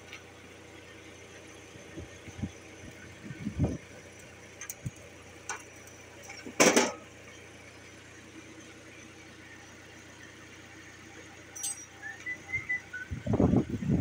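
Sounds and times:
forklift engine idling: 0.0 - 14.0
metal parts clanking: 11.6 - 12.0.

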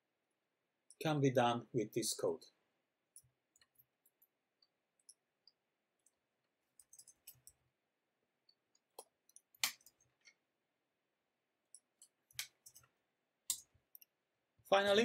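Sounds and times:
mouse and keyboard clicks: 8.8 - 10.4.

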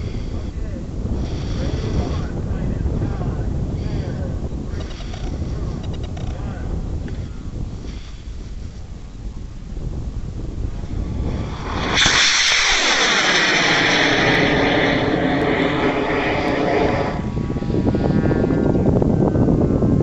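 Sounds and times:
wind: 0.0 - 20.0
rocket motor burning: 10.8 - 18.7.

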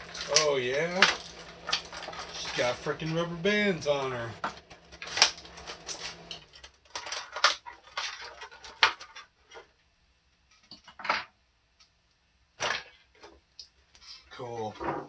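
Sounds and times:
plastic packaging crinkling and clicking: 0.0 - 3.2, 3.9 - 9.3.

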